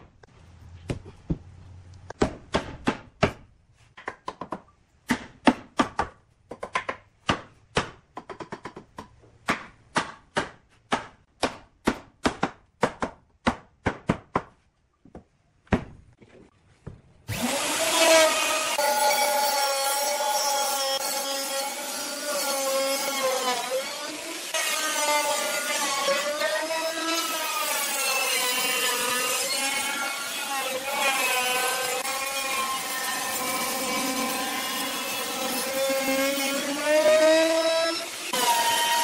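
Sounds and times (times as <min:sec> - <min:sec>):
electric router cutting wood: 0:17.3 - 0:39.0.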